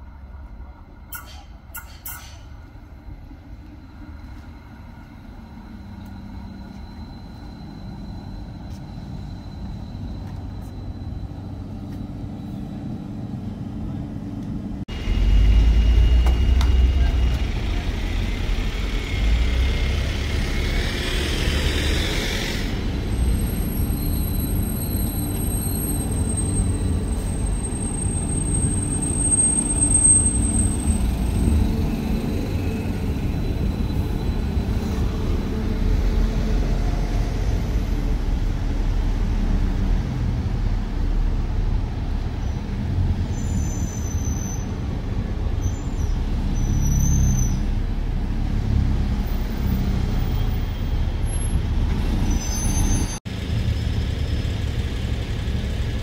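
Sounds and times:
town traffic: 0:00.0 - 0:56.0
tram rumbling at a stop: 0:00.0 - 0:56.0
tram running on track: 0:00.0 - 0:56.0.

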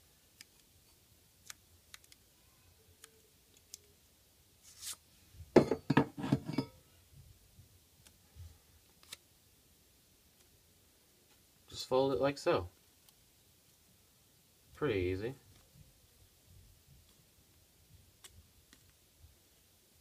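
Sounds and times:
paper rustling and crinkling: 0:04.6 - 0:05.0.

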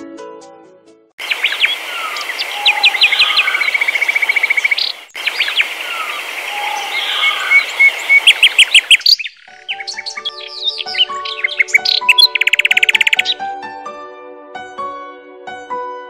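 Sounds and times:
steady hiss: 0:01.2 - 0:09.1
birds chirping and whistling: 0:01.2 - 0:13.4
rapid bird trill: 0:01.2 - 0:13.4.

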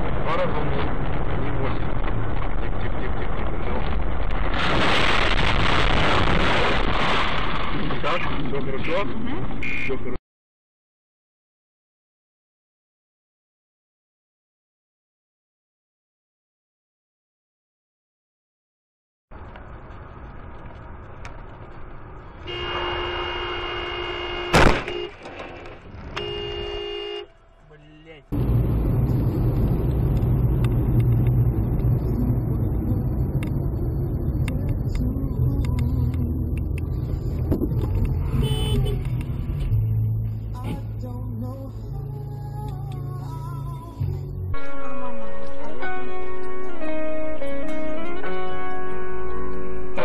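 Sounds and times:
car road and engine noise: 0:00.0 - 0:10.2, 0:19.3 - 0:50.0
loud collision crash: 0:02.0 - 0:08.4, 0:24.4 - 0:26.8
car horn sounding: 0:22.4 - 0:25.2, 0:26.1 - 0:28.3, 0:38.2 - 0:39.2.

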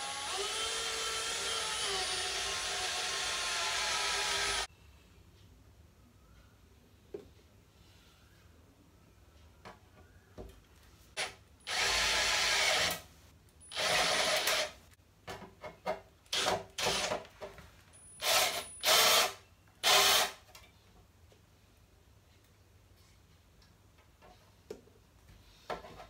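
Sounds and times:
power drill cutting into steel: 0:00.0 - 0:04.7, 0:11.2 - 0:13.0, 0:13.6 - 0:14.8, 0:18.2 - 0:20.4.

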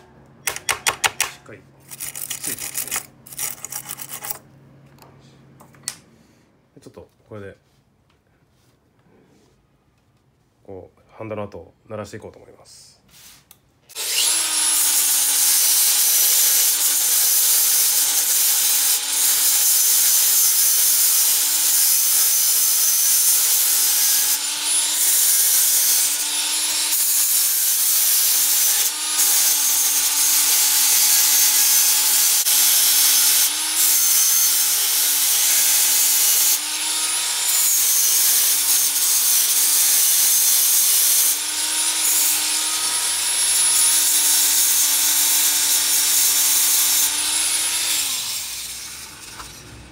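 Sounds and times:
rotary tool motor whine: 0:13.9 - 0:20.4.

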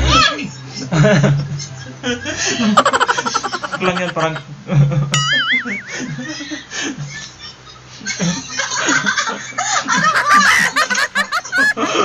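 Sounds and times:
man laughing: 0:02.2 - 0:07.2, 0:09.6 - 0:12.0.

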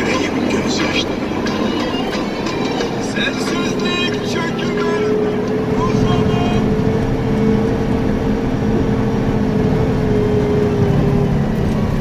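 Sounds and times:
truck diesel engine running: 0:00.0 - 0:12.0
tyre and road noise: 0:00.0 - 0:12.0.

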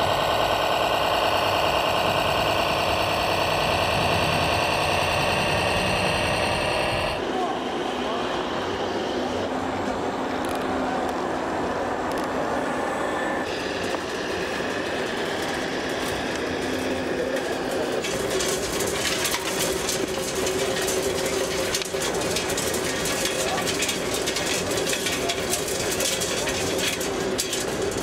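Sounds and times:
model machine motors whirring: 0:00.0 - 0:07.2
model excavator clicking as it digs: 0:16.0 - 0:28.0.

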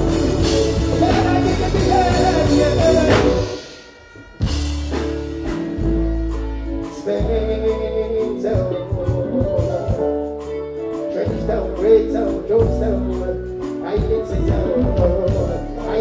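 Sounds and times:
amplified singing voice: 0:00.0 - 0:04.0
backing track with heavy bass: 0:00.0 - 0:16.0.

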